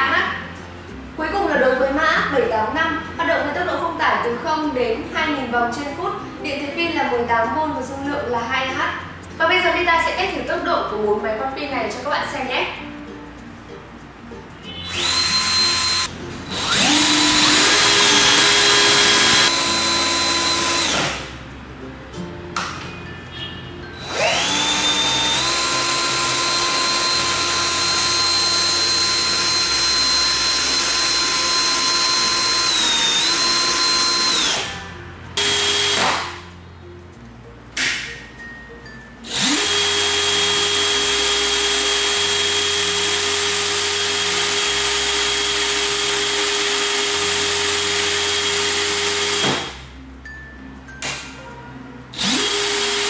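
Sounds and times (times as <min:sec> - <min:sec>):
quiet background music: 0:00.0 - 0:53.0
cordless drill motor whine: 0:14.8 - 0:21.2, 0:24.0 - 0:34.7, 0:35.4 - 0:36.2, 0:39.3 - 0:49.7, 0:52.2 - 0:53.0.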